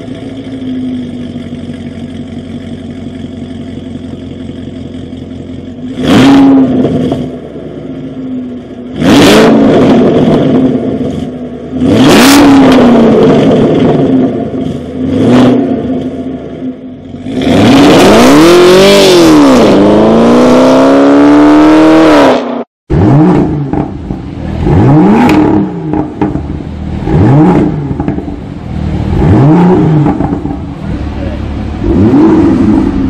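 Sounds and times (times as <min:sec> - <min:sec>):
car engine blips from idle: 0:00.0 - 0:08.9
car engine revving: 0:00.0 - 0:33.0.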